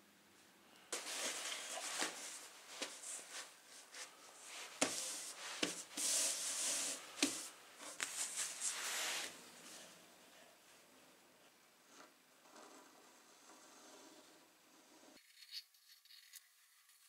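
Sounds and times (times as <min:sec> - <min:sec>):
leather rustling and rubbing: 0:01.0 - 0:09.3.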